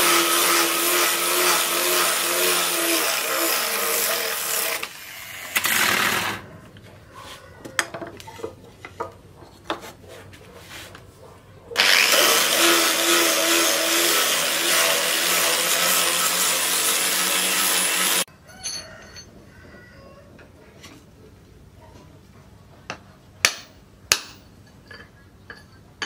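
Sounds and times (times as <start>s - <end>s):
angle grinder sanding wood: 0.0s - 5.2s, 11.8s - 18.3s.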